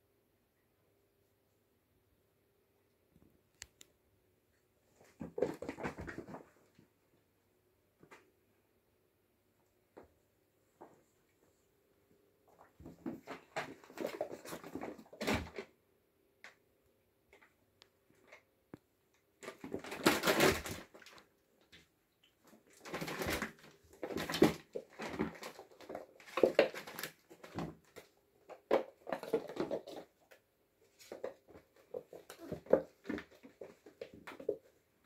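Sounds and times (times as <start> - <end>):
kittens scuffling and scrabbling: 4.8 - 7.0, 12.4 - 15.8, 17.3 - 35.0.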